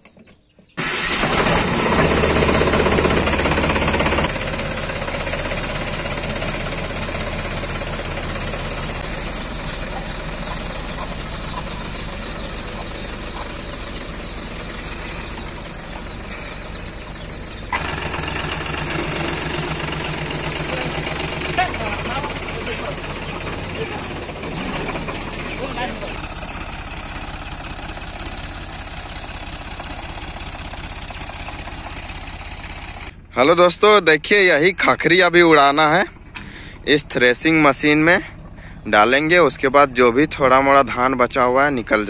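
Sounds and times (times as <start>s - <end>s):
tractor diesel engine starting: 0.6s - 42.0s
diesel engine idling: 0.7s - 42.0s.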